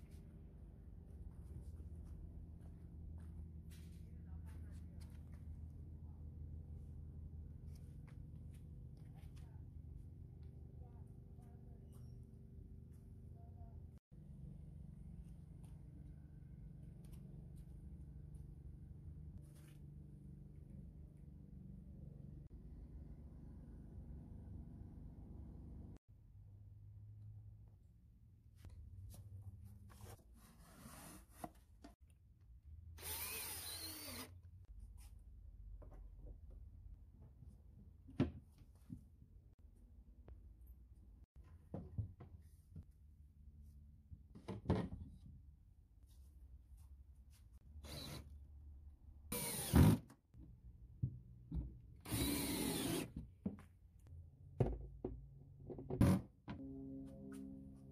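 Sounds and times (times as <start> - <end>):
cordless drill whining: 33.0 - 34.3, 47.8 - 48.2, 49.4 - 50.0, 52.0 - 53.1.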